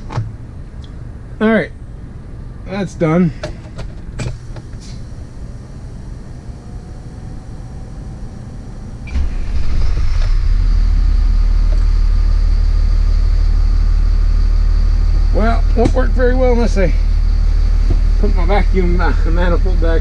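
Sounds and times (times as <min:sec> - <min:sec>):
low steady hum: 0:00.0 - 0:20.0
faint high whine: 0:04.3 - 0:20.0
machine low rumble: 0:04.3 - 0:20.0.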